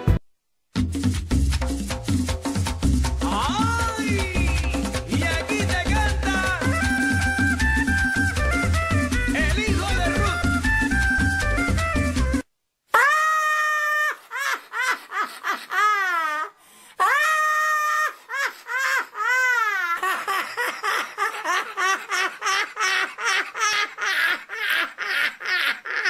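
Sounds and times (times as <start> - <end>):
woman's shrill laughter: 12.9 - 26.0.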